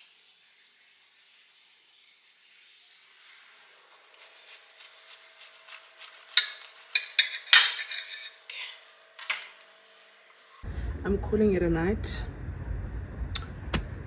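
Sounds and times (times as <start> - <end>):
dishes and cutlery clinking: 6.3 - 8.5
faint steady hum: 8.4 - 14.0.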